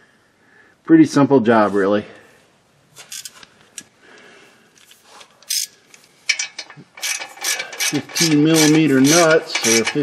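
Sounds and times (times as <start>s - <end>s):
hand ratchet clicking: 5.4s - 10.0s.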